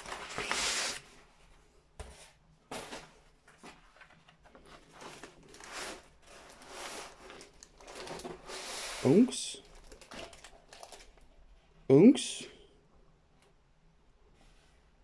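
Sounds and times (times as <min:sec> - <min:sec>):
plastic-covered canvas rustling: 0:00.0 - 0:01.3, 0:02.7 - 0:11.3.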